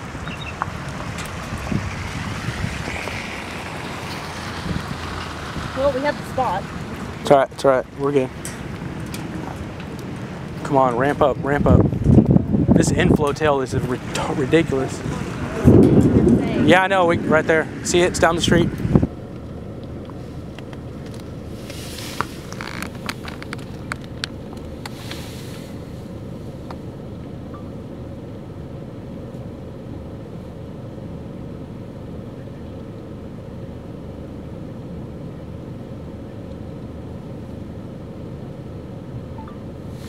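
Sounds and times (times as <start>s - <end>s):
wind buffeting microphone: 0.0s - 19.2s
light clicks and rustles: 19.4s - 25.2s.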